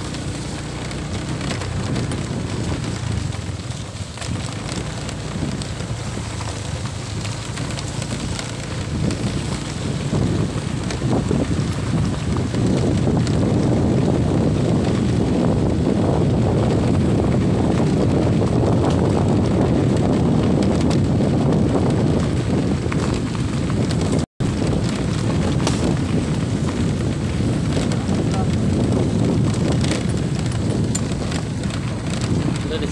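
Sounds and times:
motorcycle rumble: 0.0 - 32.9
wind buffeting microphone: 0.0 - 32.9.

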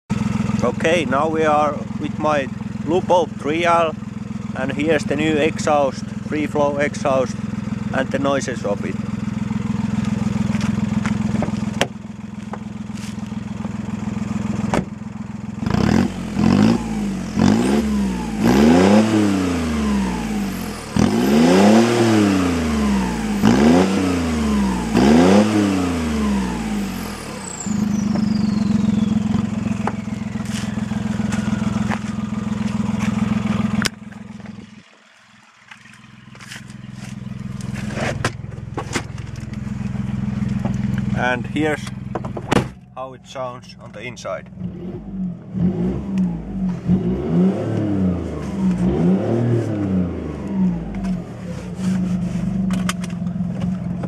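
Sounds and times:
diesel engine idling and revving: 0.1 - 54.0
faint falling whistle: 27.5 - 31.9.

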